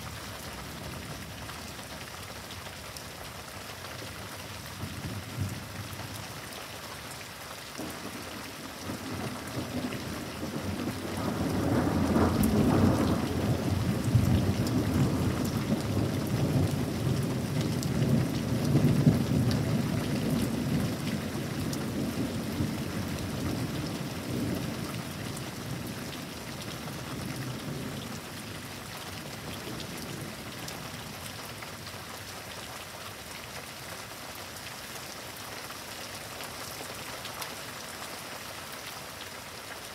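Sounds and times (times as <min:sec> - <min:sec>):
steady rain falling: 0:00.0 - 0:39.9
thunder rumbling: 0:08.8 - 0:21.0.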